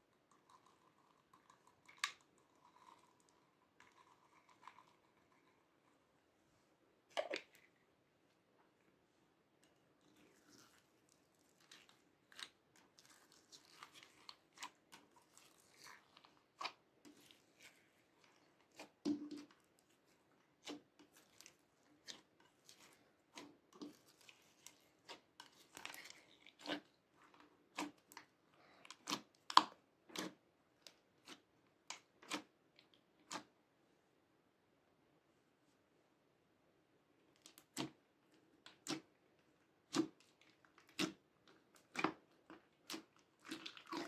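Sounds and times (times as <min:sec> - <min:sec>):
slime squelching: 0:00.1 - 0:06.1, 0:07.0 - 0:33.6, 0:37.2 - 0:44.0
soft slime crackling: 0:09.7 - 0:33.5.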